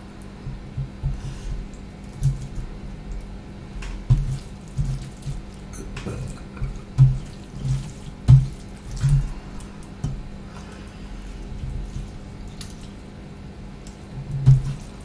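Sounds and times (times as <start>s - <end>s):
wet squelching of food: 3.9s - 15.0s.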